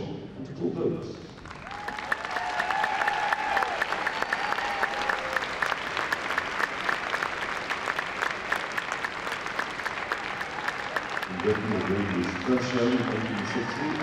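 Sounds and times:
crowd applauding: 1.4 - 14.0.

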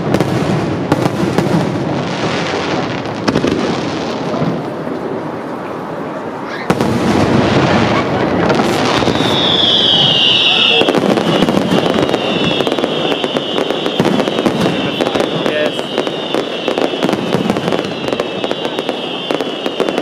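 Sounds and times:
fireworks crackling: 0.0 - 20.0
firework shells bursting: 8.5 - 20.0
high whistle: 8.9 - 20.0.

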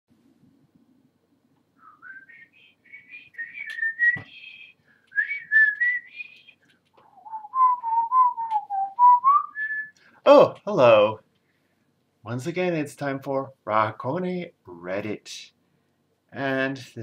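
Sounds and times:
man whistling a tune: 1.8 - 10.0.

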